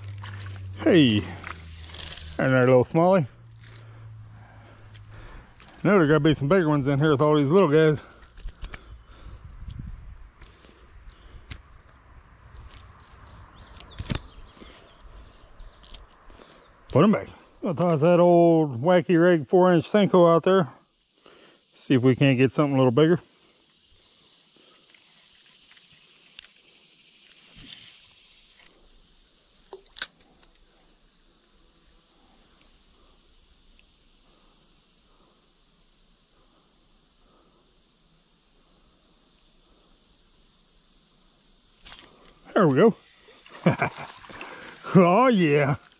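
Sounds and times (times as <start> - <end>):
insect trilling: 0.0 - 45.9
fishing reel clicks: 1.3 - 2.4
sharp click: 13.7 - 14.3
faint ticks: 24.7 - 27.8, 32.5 - 32.8.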